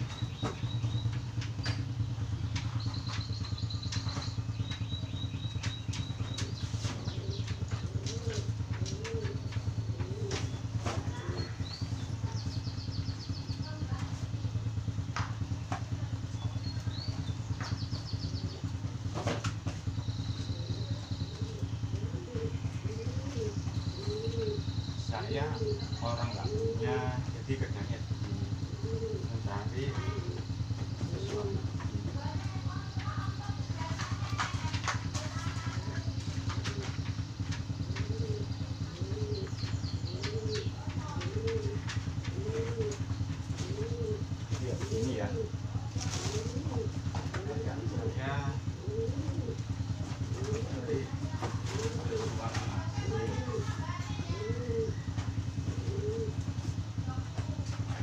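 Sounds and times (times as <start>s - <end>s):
faint bird chirps: 0.0s - 8.4s, 19.9s - 34.6s
dove cooing: 0.0s - 58.0s
small engine idling hum: 0.0s - 58.0s.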